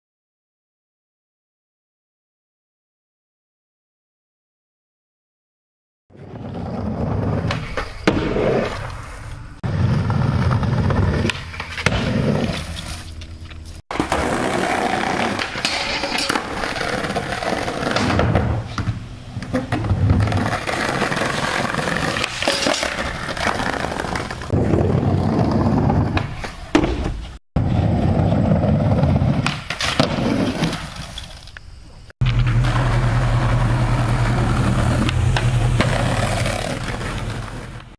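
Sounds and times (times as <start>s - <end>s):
skateboard wheels rolling on concrete: 6.1s - 37.9s
skateboard clacks: 32.2s - 37.9s.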